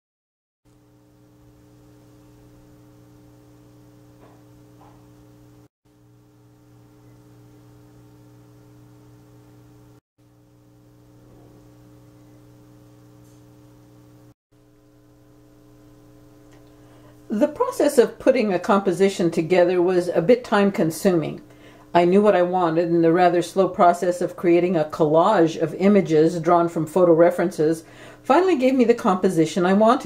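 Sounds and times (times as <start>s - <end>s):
faint electrical hum: 0.7s - 30.0s.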